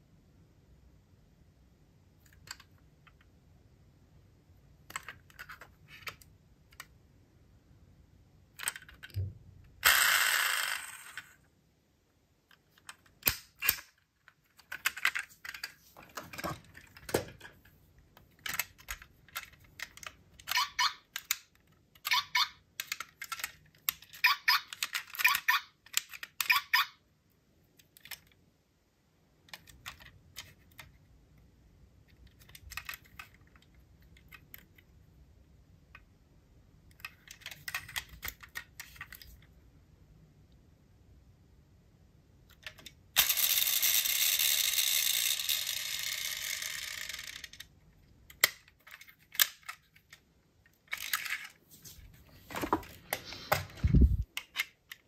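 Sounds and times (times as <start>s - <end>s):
toy cars clicking and tapping: 8.5s - 9.2s, 9.8s - 11.4s, 12.5s - 17.6s, 18.2s - 26.9s, 42.5s - 51.6s.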